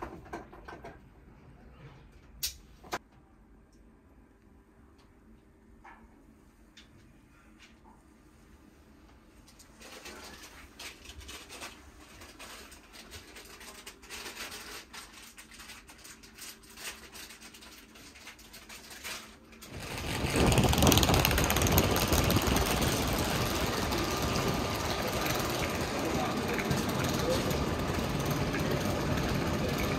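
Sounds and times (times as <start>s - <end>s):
faint clicks and rustles: 9.4s - 29.9s
railway platform noise: 19.7s - 29.9s.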